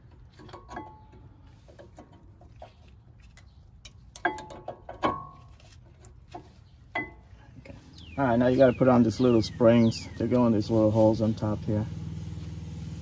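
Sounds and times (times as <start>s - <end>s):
ringing metal clanks: 0.3s - 2.3s, 3.9s - 5.6s, 6.9s - 7.4s
metal clicks and clinks: 3.4s - 5.4s.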